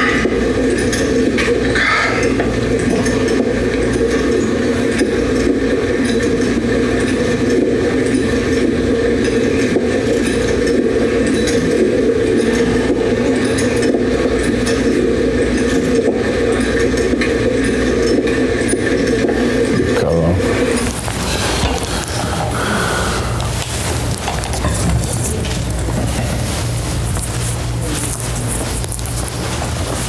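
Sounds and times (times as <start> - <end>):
equipment clicks and clinks: 0.0 - 30.0
rustling against microphone: 20.4 - 30.0.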